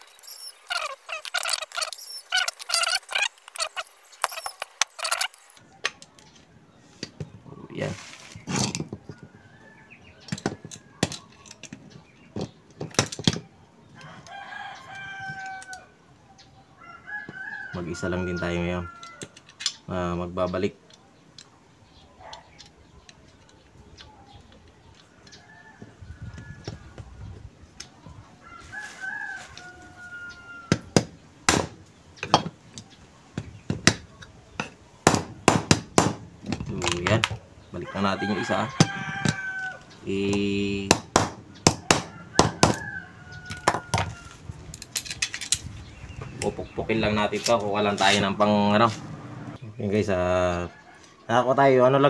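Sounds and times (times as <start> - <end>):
rooster crowing: 14.0 - 16.0, 16.7 - 19.4, 28.3 - 31.0, 37.8 - 40.0, 41.8 - 44.5.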